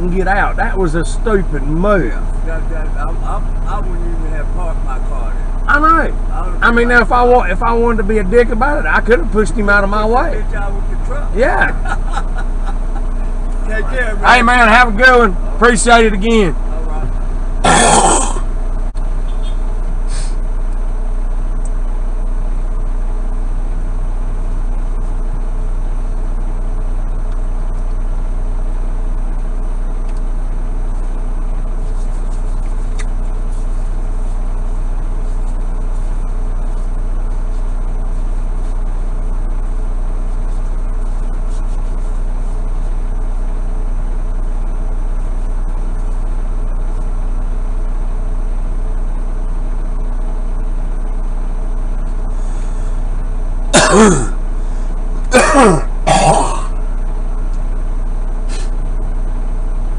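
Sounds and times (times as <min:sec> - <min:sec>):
diesel truck engine idling: 0:00.0 - 0:59.9
short burst of noise: 0:19.1 - 0:20.5.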